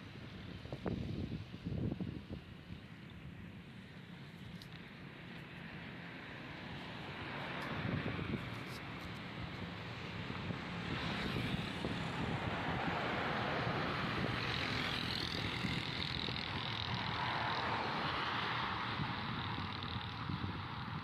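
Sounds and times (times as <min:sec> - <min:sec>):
wind on microphone: 0:00.0 - 0:03.5, 0:07.7 - 0:21.0
road traffic: 0:00.0 - 0:21.0.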